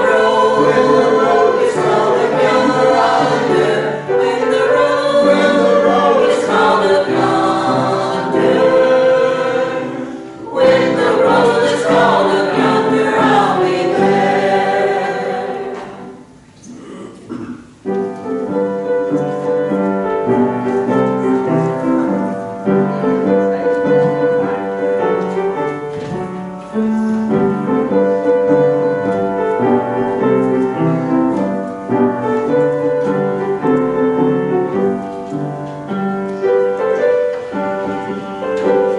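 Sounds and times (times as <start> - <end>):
choir singing a hymn: 0.0 - 16.4.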